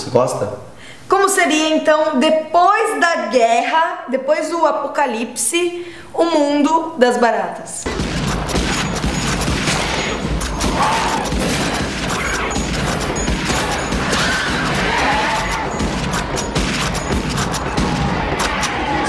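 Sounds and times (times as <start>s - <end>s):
crashing impacts: 7.9s - 18.8s
rapid gunfire: 7.9s - 18.9s.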